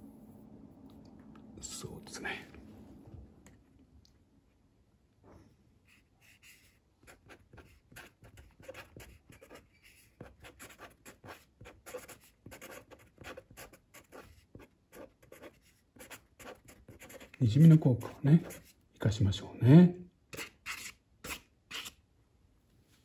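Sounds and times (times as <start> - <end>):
pen scratching on paper: 5.9 - 18.8.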